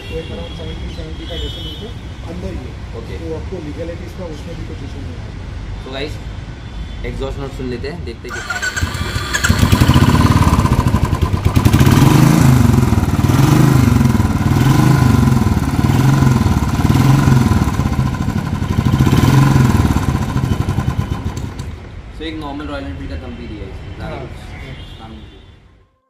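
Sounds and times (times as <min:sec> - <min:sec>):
motorcycle engine revving: 0:08.3 - 0:21.7.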